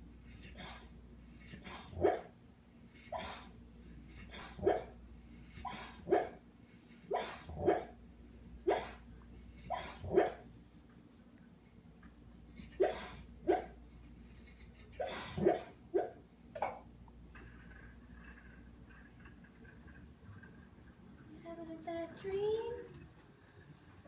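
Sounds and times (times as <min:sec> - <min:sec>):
puppy barking in sleep: 0:01.6 - 0:02.3, 0:03.1 - 0:03.5, 0:05.6 - 0:06.4, 0:07.1 - 0:08.0, 0:08.6 - 0:09.1, 0:09.7 - 0:10.5, 0:12.7 - 0:13.8, 0:15.0 - 0:16.2.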